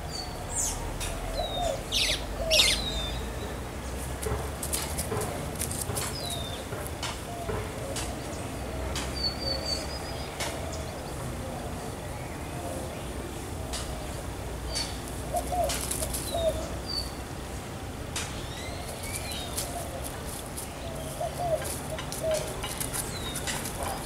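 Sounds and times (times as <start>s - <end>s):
birds chirping and whistling: 0.1s - 3.6s
sharp clicks or rustles: 15.6s - 16.4s.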